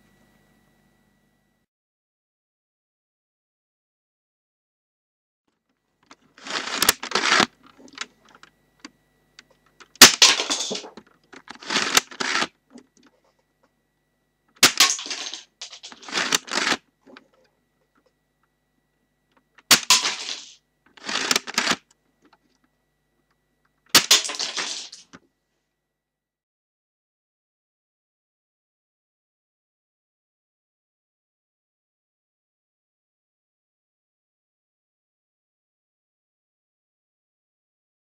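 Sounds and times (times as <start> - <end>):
plastic clatter: 6.1 - 8.5, 9.8 - 13.4, 14.6 - 17.4, 19.6 - 22.4, 24.0 - 25.2.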